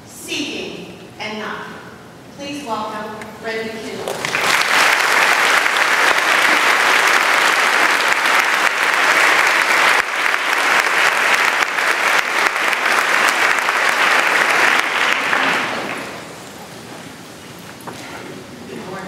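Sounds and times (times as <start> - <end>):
audience clapping: 4.0 - 16.4.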